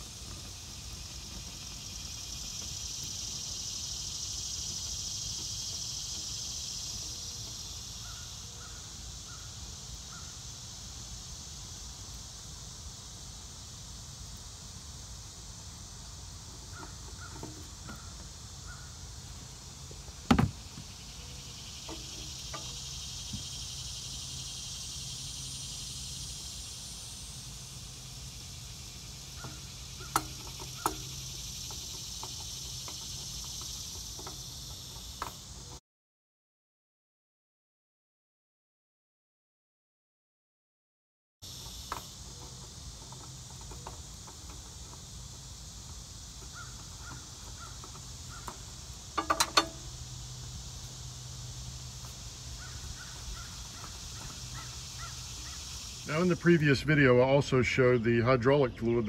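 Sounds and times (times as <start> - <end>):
insects buzzing: 0.0 - 35.8, 41.4 - 59.0
bird calling: 0.3 - 10.5, 16.6 - 19.4, 28.4 - 35.8, 46.4 - 49.8, 52.0 - 56.8
sharp knock: 20.3 - 20.6.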